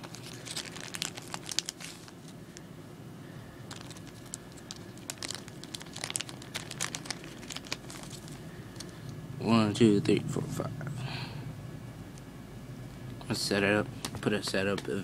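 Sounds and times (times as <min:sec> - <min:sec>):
plastic bag crinkling: 0:00.0 - 0:02.4, 0:03.6 - 0:09.0.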